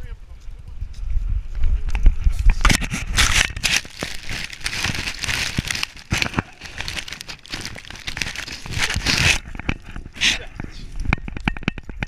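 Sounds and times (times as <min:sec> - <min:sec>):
twigs and leaves crackling: 0:02.7 - 0:12.0.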